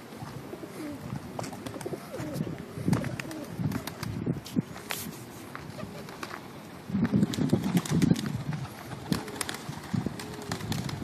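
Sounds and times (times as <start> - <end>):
pigeons cooing: 0.0 - 4.0, 5.7 - 6.2, 8.0 - 11.0.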